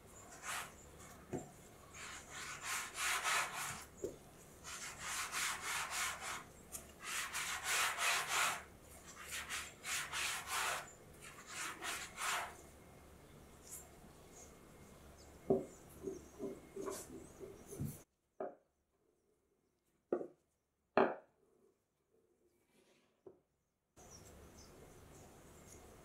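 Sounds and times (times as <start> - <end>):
dough rubbing on baking mat: 0.3 - 0.8, 1.9 - 4.0, 4.6 - 12.6.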